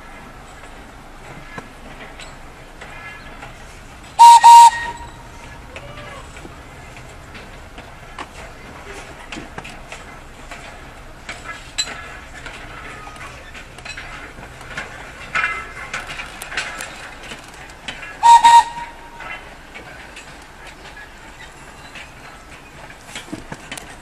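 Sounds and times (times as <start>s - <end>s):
toy train moving on track: 0.3s - 24.0s
train whistle: 4.2s - 6.3s, 18.2s - 19.4s.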